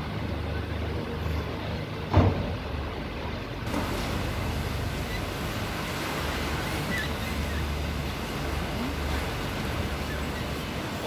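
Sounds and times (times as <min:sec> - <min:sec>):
sea water surging in cave: 0:03.6 - 0:11.0.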